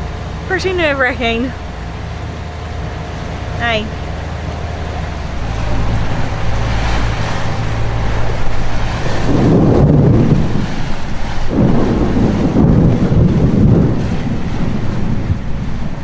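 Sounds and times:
steady low hum: 0.0s - 16.0s
thunder rumbling: 0.0s - 16.0s.

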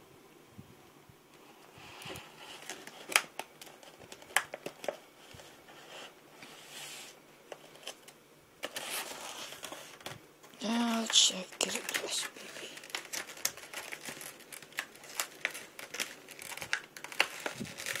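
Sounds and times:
plastic crinkling: 1.4s - 18.0s
plastic packaging clicks and taps: 2.6s - 5.0s, 10.9s - 18.0s.

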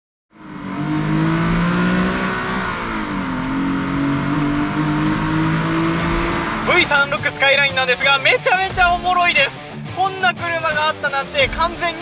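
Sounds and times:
car engine running: 0.3s - 9.8s
road noise: 0.3s - 9.8s.

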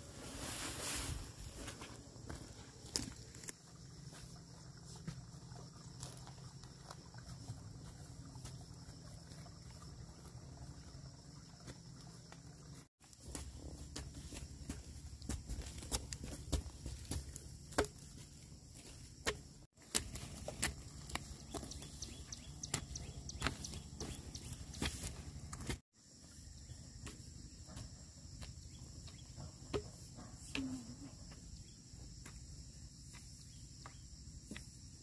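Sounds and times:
insects droning: 0.0s - 35.0s
footsteps in debris: 1.1s - 3.6s, 13.0s - 25.8s
poles jabbing into dry soil: 13.1s - 25.8s.

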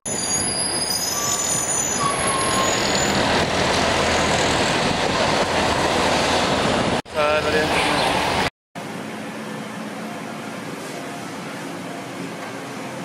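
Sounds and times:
short high squeal: 0.1s - 3.2s
street traffic: 0.1s - 13.0s
bus passing: 0.3s - 13.0s.

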